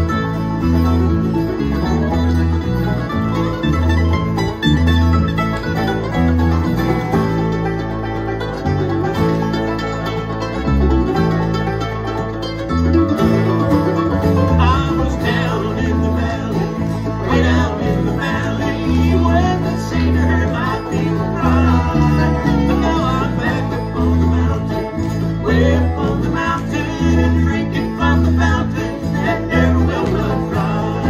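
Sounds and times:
bluegrass band playing: 0.0s - 31.0s
lead melody: 0.0s - 31.0s
steady bass line: 0.0s - 31.0s.

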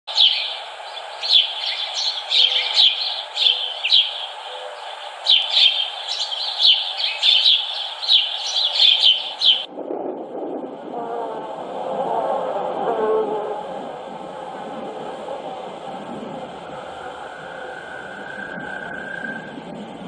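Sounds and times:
birds chirping: 0.1s - 9.7s
background ambience: 0.1s - 20.0s.

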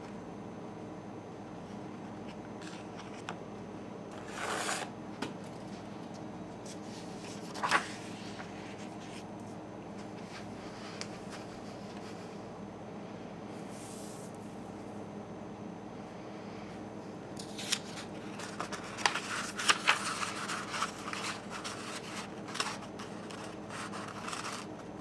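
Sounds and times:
steady low hum: 0.0s - 25.0s
paper rustling on wooden table: 6.7s - 9.3s, 17.4s - 24.9s.

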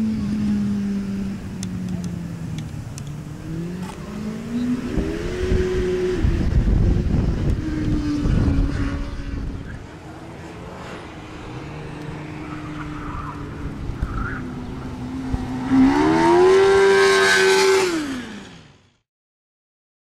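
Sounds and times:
race car engine accelerating: 3.2s - 18.8s.

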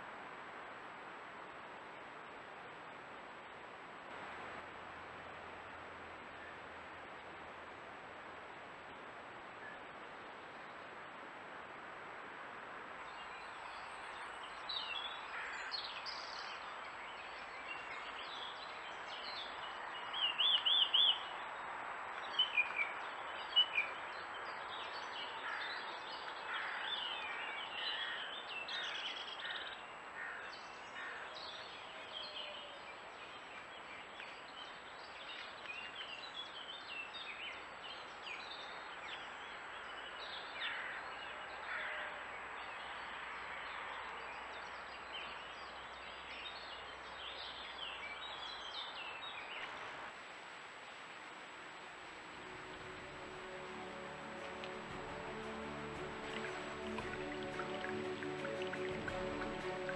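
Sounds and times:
steady hiss: 0.0s - 13.0s
songbirds calling and singing: 13.0s - 49.8s, 52.1s - 59.9s.

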